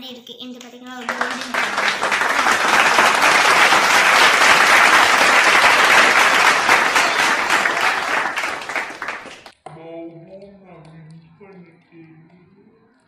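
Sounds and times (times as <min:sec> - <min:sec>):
applause: 0:00.9 - 0:09.5.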